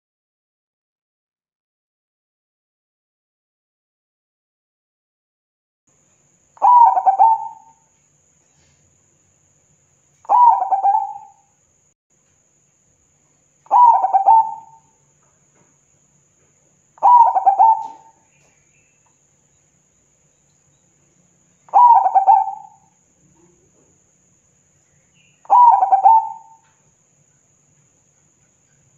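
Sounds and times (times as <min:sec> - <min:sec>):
dove cooing: 0:06.6 - 0:07.8, 0:10.2 - 0:11.4, 0:13.7 - 0:14.9, 0:17.0 - 0:18.6, 0:21.7 - 0:23.7, 0:25.4 - 0:26.7.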